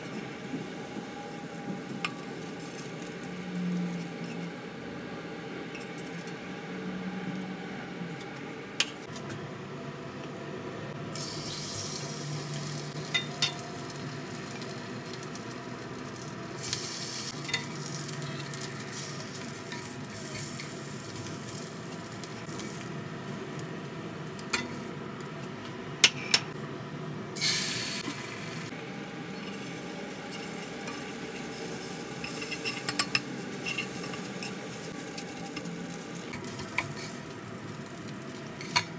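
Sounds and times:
egg sizzling in oil: 0.0s - 4.5s, 11.2s - 24.9s, 27.4s - 38.9s.

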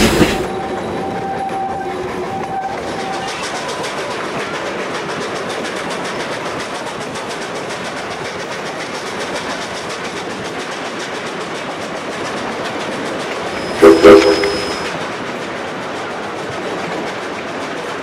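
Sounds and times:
model train rolling clatter: 0.0s - 18.0s
train whistle: 13.5s - 15.0s.

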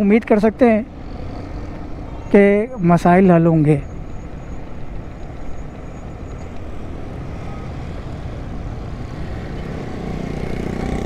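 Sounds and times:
road and traffic noise: 0.0s - 11.0s
motorcycle engine close by: 7.4s - 11.0s.

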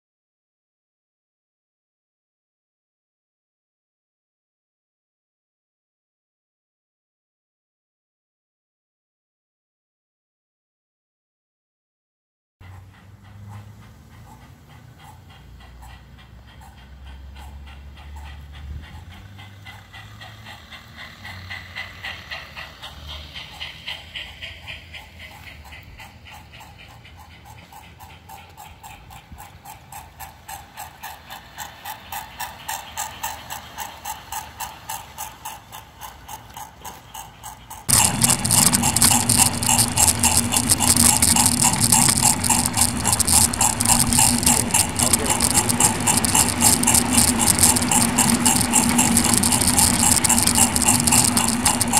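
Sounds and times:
model train wheels clicking: 12.6s - 51.9s
motor and gear hum: 37.8s - 51.9s.

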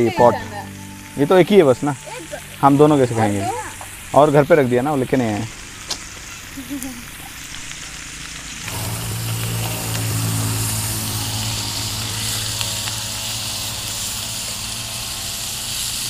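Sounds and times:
fish sizzling in oil: 0.0s - 16.0s
low mechanical hum: 8.4s - 16.0s.

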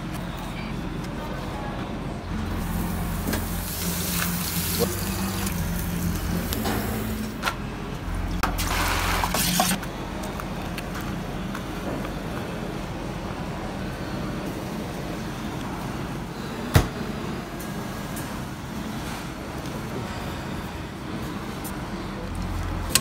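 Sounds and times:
steady low hum: 0.0s - 23.0s
potatoes hissing in deep fryer oil: 2.6s - 7.2s
fat sizzling on a grill: 2.6s - 7.4s.

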